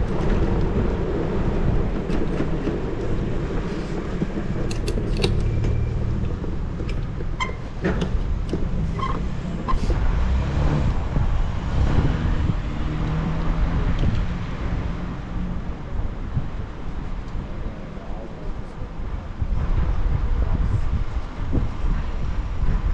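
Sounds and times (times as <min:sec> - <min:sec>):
passing city traffic: 0:00.0 - 0:22.9
wind rumble on microphone: 0:00.0 - 0:22.9
sharp clicks and rattles: 0:02.1 - 0:09.4.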